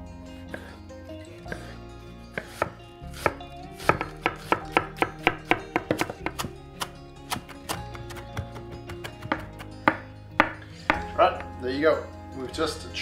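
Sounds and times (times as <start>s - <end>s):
knife chopping on wooden board: 2.4s - 11.1s.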